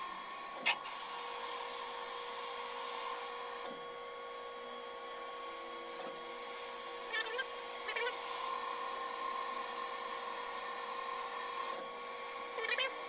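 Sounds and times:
lathe whine and hiss: 0.0 - 13.0
cutting tool squeals: 7.0 - 9.8, 12.4 - 13.0.

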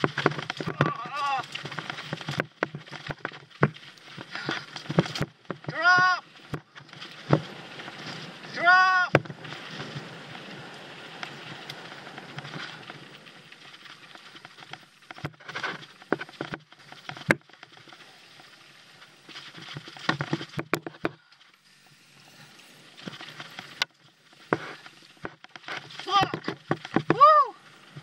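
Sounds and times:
sharp knocks over bumps: 0.0 - 7.6, 19.6 - 21.2
tyres crunching over dirt and stones: 0.0 - 21.7, 22.8 - 28.0
bike rattling: 0.0 - 28.0.

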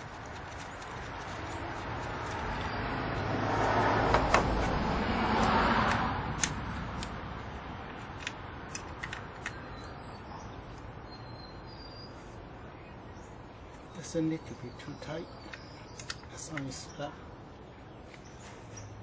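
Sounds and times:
vehicle passing: 0.0 - 9.4.

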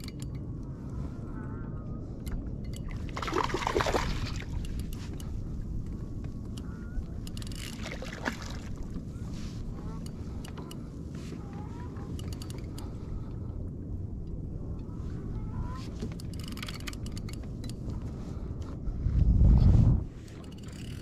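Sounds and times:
water slapping against hull: 2.8 - 5.3, 7.7 - 9.1.

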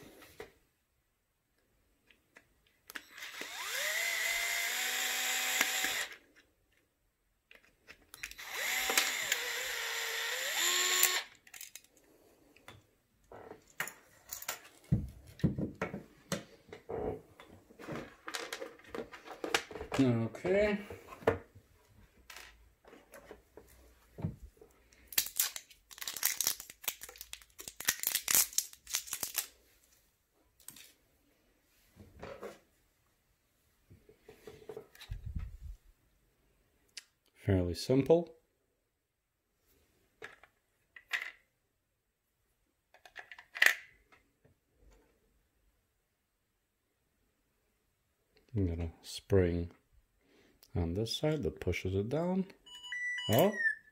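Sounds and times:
plastic tool housing clicks and rattles: 11.3 - 12.0, 43.0 - 44.0
plastic wrapping crinkling: 25.1 - 29.6.

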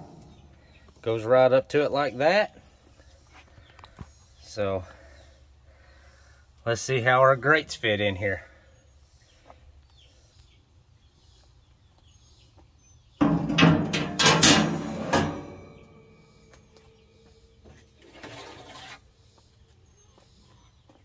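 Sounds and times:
birds chirping: 0.0 - 21.0
metal grate clanking: 13.2 - 16.4
metal scrape: 13.2 - 16.4, 18.0 - 19.1.

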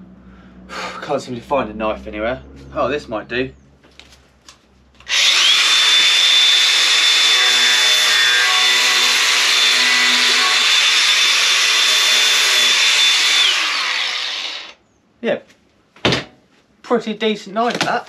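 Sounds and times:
angle grinder cutting cardboard: 5.0 - 14.8.

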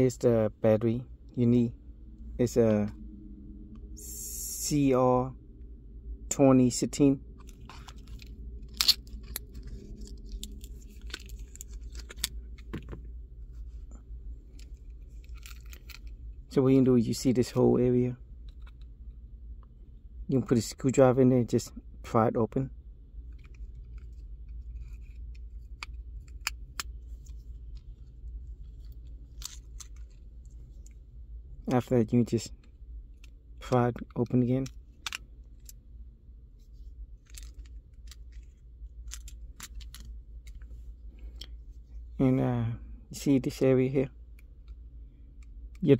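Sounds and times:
low steady hum: 0.0 - 45.9
plastic clicks and crackles: 33.2 - 35.8, 37.2 - 41.5.

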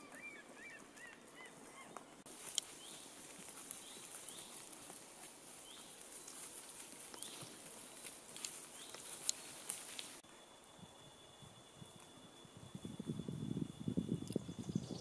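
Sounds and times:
sheep tearing and chewing grass: 2.3 - 10.2
faint high rising chirps: 10.2 - 15.0.

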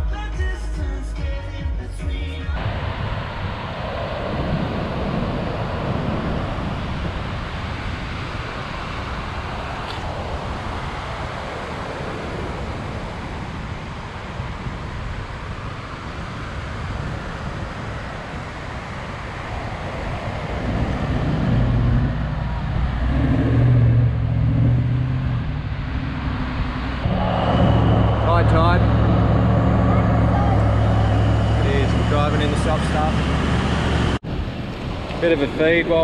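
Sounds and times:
wind on microphone: 2.6 - 36.0
diesel engine approaching: 18.9 - 36.0
surf breaking: 19.1 - 34.2.

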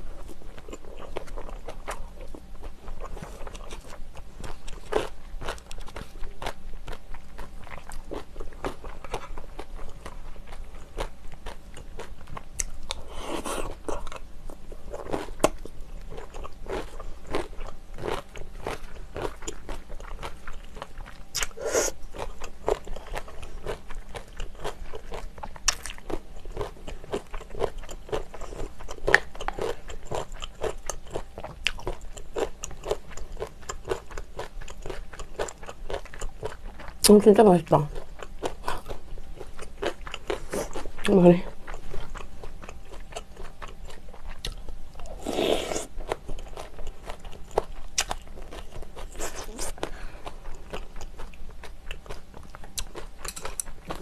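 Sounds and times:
person chewing and crunching food: 0.0 - 54.0.

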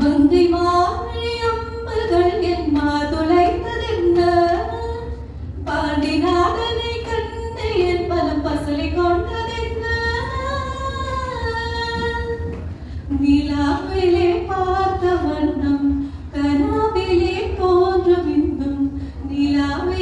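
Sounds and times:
woman singing unaccompanied: 0.0 - 12.5, 13.1 - 20.0.

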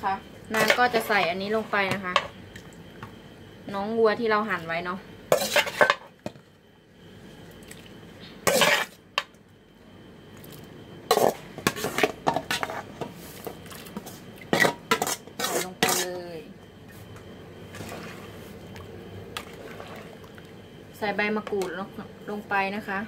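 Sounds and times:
metal ladle scraping metal bowl: 5.3 - 6.0, 8.4 - 9.0, 14.6 - 16.2.

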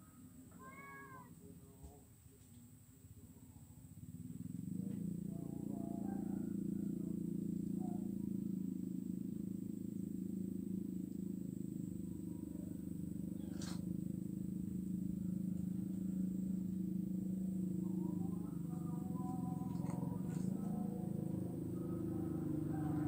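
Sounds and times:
low droning hum: 2.8 - 23.0
faint higher tones: 11.2 - 23.0.

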